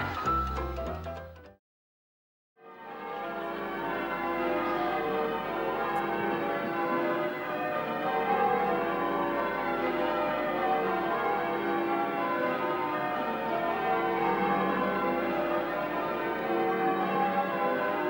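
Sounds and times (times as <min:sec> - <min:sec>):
church bells pealing: 0:02.6 - 0:18.0.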